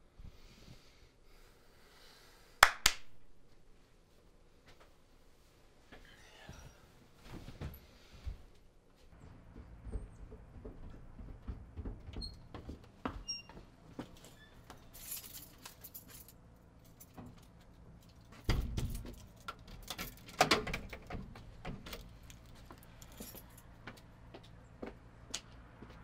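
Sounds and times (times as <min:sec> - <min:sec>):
keys jangling: 0:14.8 - 0:21.1, 0:22.0 - 0:23.7.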